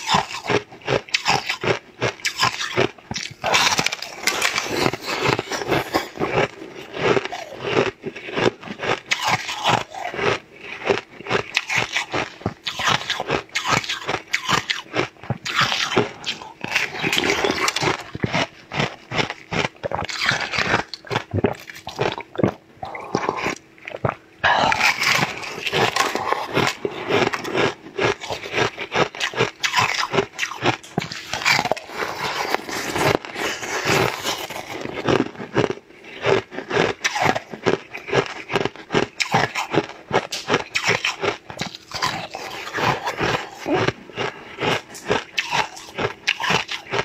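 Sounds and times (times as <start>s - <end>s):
crunching and chewing ice: 0.0s - 47.0s.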